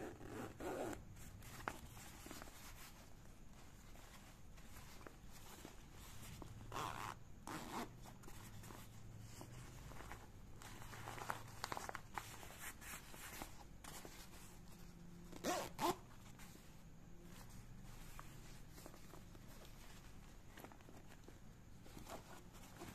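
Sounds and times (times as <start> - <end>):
zip rasps: 15.4 - 16.0.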